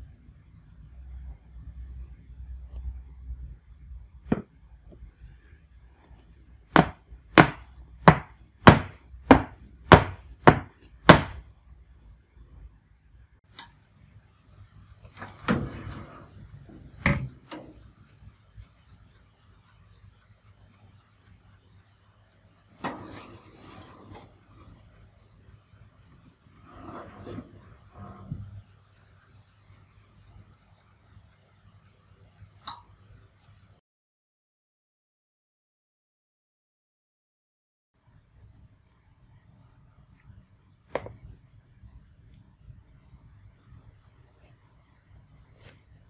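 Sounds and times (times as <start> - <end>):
pan scraping on wire rack: 15.2 - 16.9, 22.8 - 24.6, 26.6 - 28.5.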